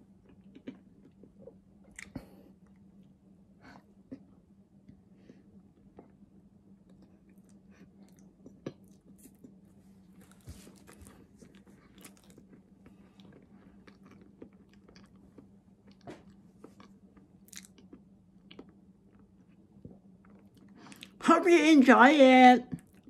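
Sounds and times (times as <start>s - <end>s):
person chewing: 0.1s - 2.9s, 6.9s - 21.2s.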